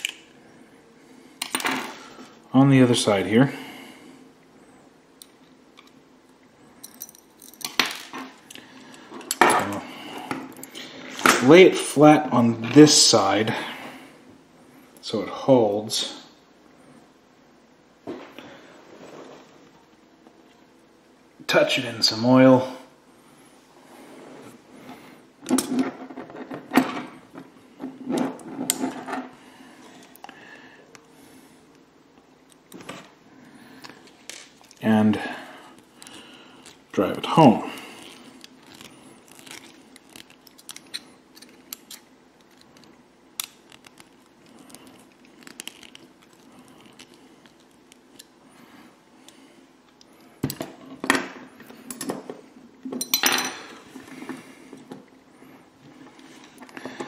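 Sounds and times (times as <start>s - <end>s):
handling rustles: 35.7s - 48.4s.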